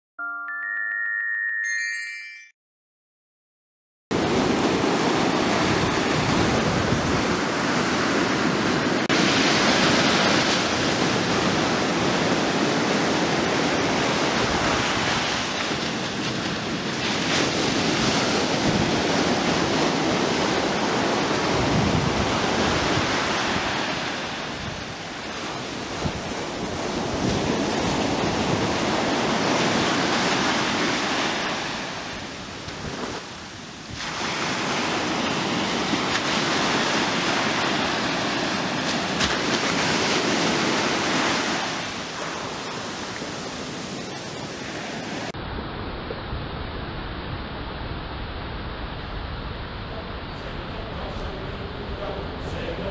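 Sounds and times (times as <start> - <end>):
surf breaking on shore: 4.2 - 45.4
wind rumbling on microphone: 4.2 - 52.9.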